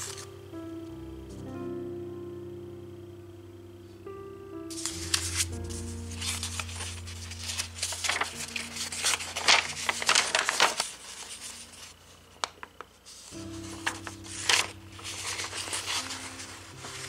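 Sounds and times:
paper crinkling and rustling: 0.0 - 0.3, 4.7 - 17.0
soft background music: 0.0 - 17.0.

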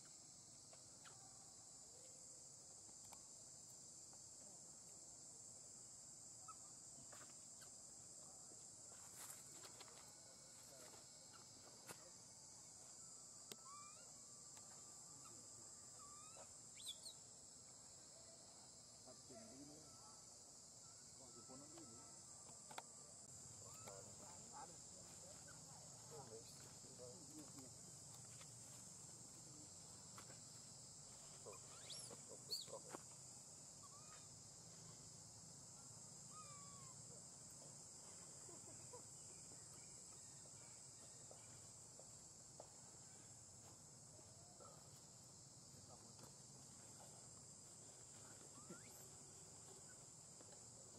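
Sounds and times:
insects droning: 0.0 - 50.9
short chirping calls: 16.0 - 17.2, 31.5 - 32.8.

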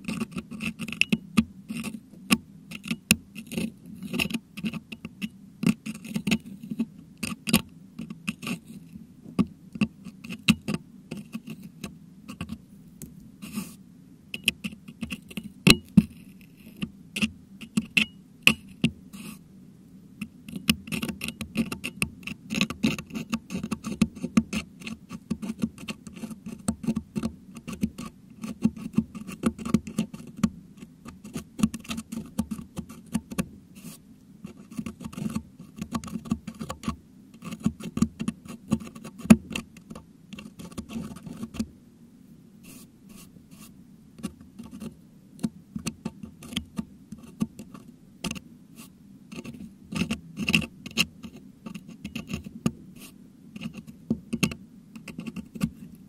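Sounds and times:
metal hook scraping microphone grille: 46.4 - 56.0.

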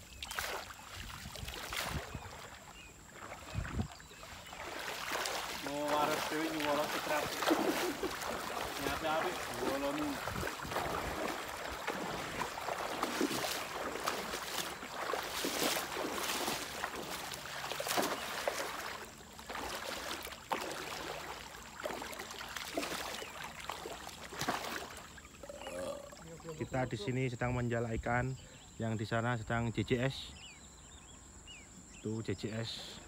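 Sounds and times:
water splashing and sloshing: 0.0 - 27.0
cast net splashing: 0.2 - 26.2.

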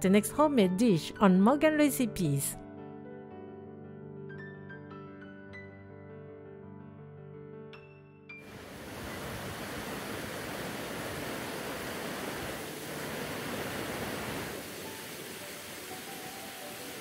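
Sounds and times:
river rapids rushing: 8.5 - 17.0.

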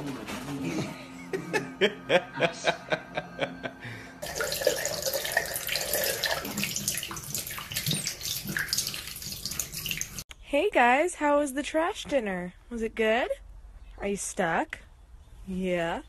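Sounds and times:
tap running into sink: 4.2 - 10.2.

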